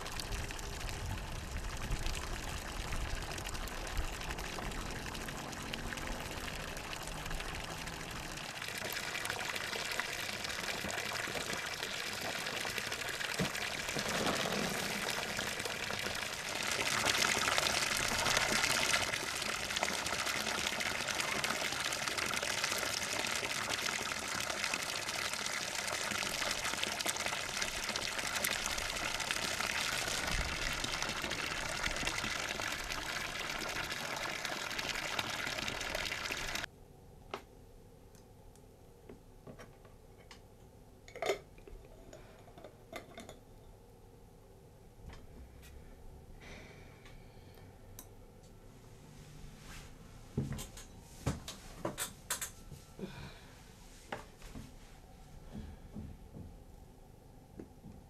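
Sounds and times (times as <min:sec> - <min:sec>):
water splashing from spout: 0:00.0 - 0:36.7.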